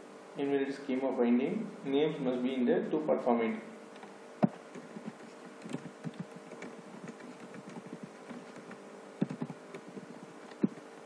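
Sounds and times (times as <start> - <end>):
keyboard keys tapping: 4.4 - 10.8.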